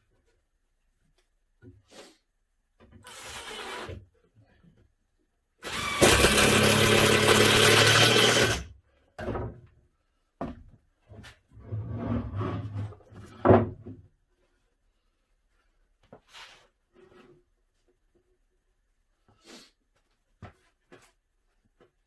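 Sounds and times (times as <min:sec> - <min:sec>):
impact driver driving screws: 0:05.6 - 0:08.6.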